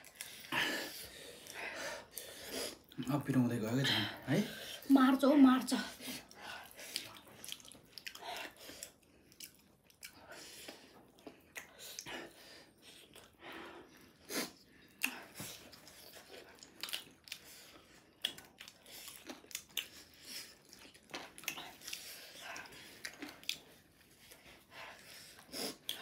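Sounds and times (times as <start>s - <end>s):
chewing and crunching: 0.0s - 3.1s, 5.7s - 26.0s.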